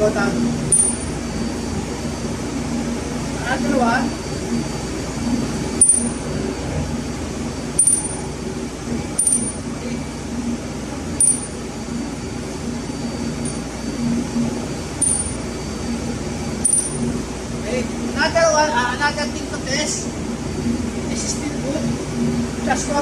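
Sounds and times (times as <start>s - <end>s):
machinery hum: 0.0s - 23.0s
metal parts clinking: 7.8s - 8.2s, 9.2s - 9.6s, 11.2s - 11.5s, 16.7s - 17.0s.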